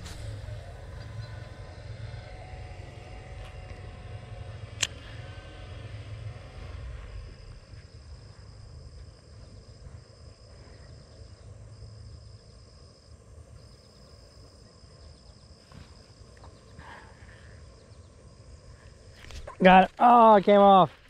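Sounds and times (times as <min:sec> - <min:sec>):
low rumble: 0:00.0 - 0:12.6
insects trilling: 0:00.0 - 0:21.0.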